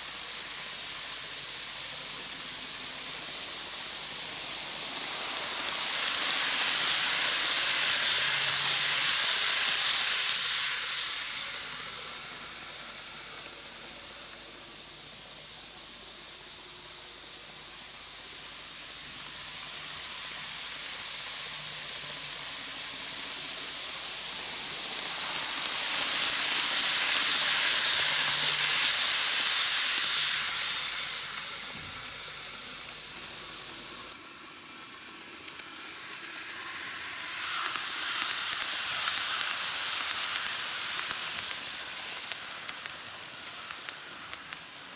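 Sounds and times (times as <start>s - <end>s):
model train hiss on rails: 0.0s - 44.9s.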